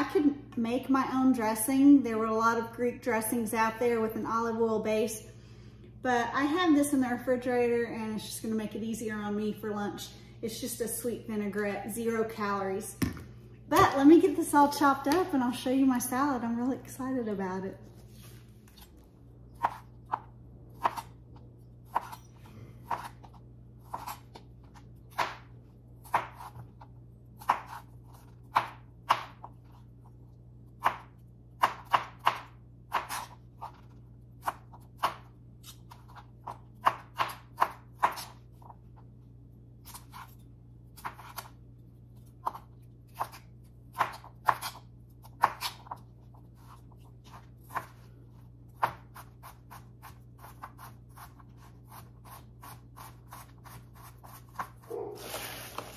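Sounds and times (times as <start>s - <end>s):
knife chopping on cutting board: 25.1s - 26.6s, 30.8s - 38.4s.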